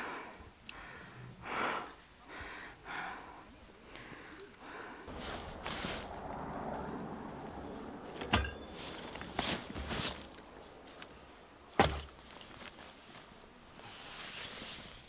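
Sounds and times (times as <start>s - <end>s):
soft handling noises: 3.8s - 15.0s
dull thumps on wooden deck: 11.8s - 12.2s.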